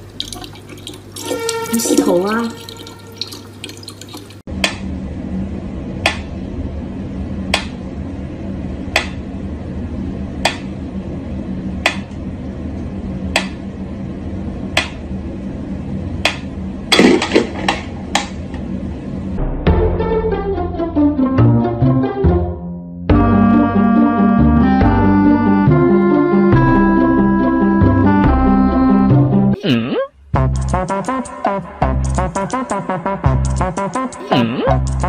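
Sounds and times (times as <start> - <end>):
low steady hum: 0.0 - 19.6.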